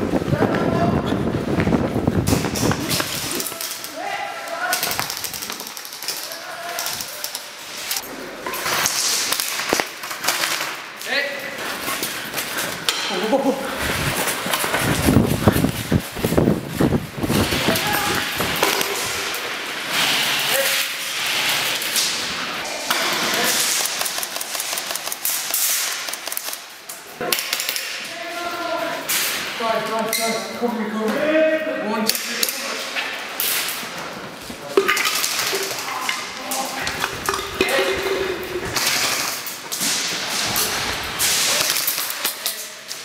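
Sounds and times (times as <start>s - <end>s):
sharp crack: 2.2s - 8.0s, 34.7s - 43.0s
airsoft rifles firing: 4.7s - 8.0s, 22.9s - 26.7s
airsoft rifles firing bursts: 23.5s - 26.7s.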